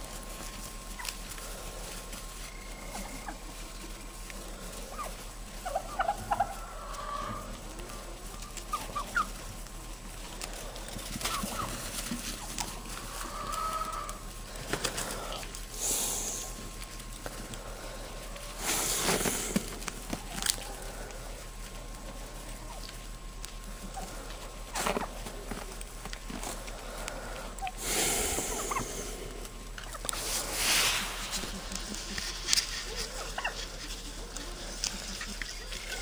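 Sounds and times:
turkeys yelping: 0:00.0 - 0:36.0
hissing noise: 0:18.6 - 0:20.1, 0:27.7 - 0:36.0.

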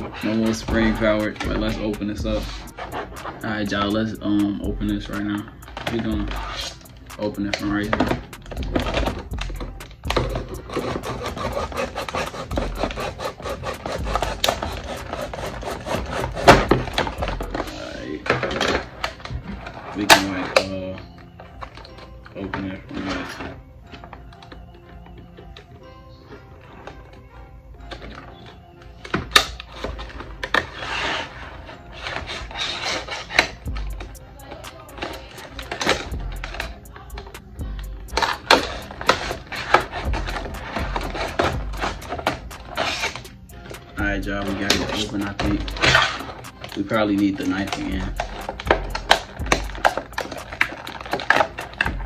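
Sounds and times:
plastic cracking: 0:05.4 - 0:30.8, 0:38.1 - 0:52.0
knife scraping plastic package: 0:10.2 - 0:20.7, 0:29.3 - 0:33.6, 0:38.2 - 0:43.3, 0:44.4 - 0:51.9.

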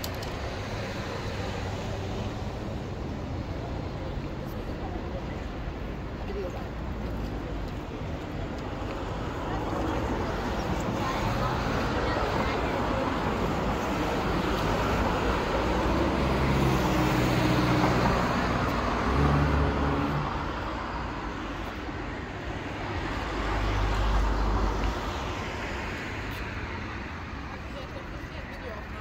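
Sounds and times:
cars driving past: 0:07.8 - 0:28.0
passing vehicle engine hum: 0:09.0 - 0:27.8.

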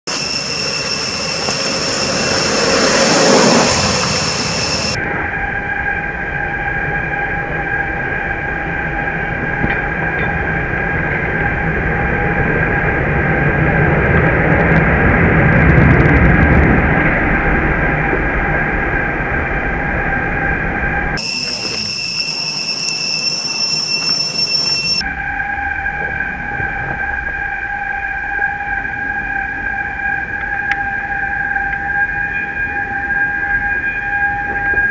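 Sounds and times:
high-pitched droning tones: 0:00.0 - 0:13.8, 0:17.4 - 0:34.9
low rumble: 0:25.0 - 0:31.4.

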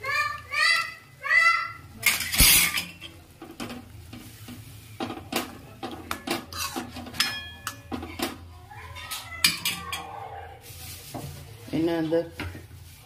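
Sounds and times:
spoon scraping metal pan: 0:06.1 - 0:08.1.

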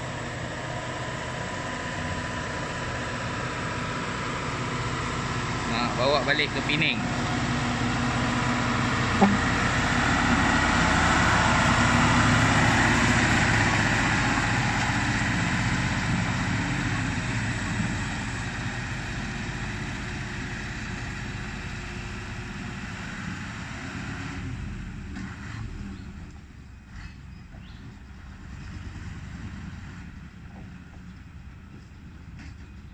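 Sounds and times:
diesel truck engine passing: 0:00.0 - 0:32.7.

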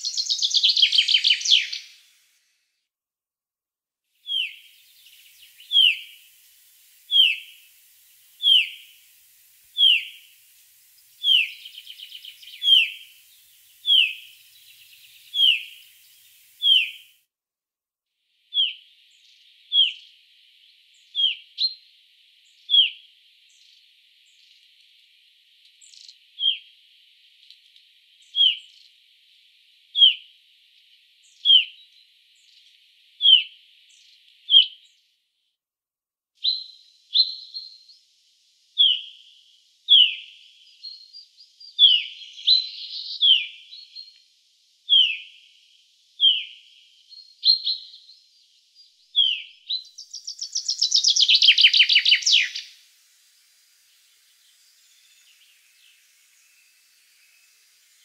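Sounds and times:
chaffinch call: 0:04.3 - 0:17.1, 0:49.2 - 0:52.9.

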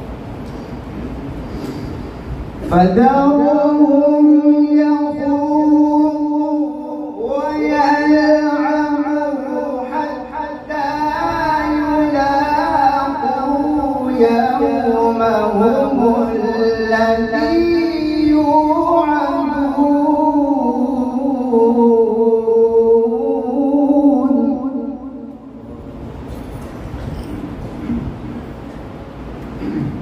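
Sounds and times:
man chanting melodically: 0:02.6 - 0:25.6.

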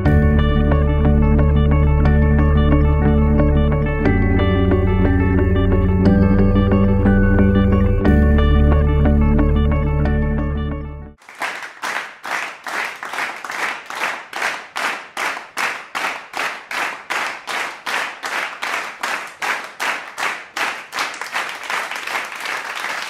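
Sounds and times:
hands clapping: 0:11.2 - 0:23.0.

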